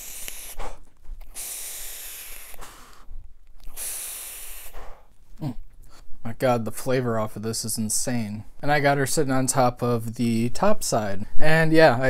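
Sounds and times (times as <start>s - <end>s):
airy hiss of vape drags: 0.0s - 5.1s
person breathing: 0.0s - 5.1s.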